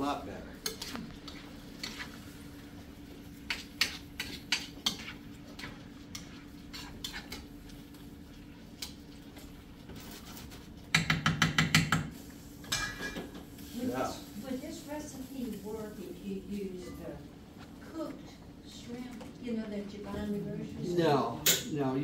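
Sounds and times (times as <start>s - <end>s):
spoon scraping a skillet: 0.6s - 13.7s.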